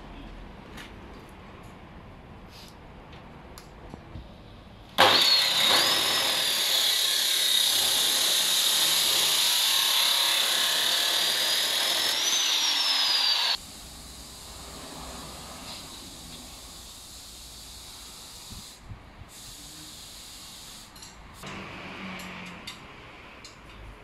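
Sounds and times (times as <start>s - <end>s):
chop saw cutting steel: 5.0s - 13.6s.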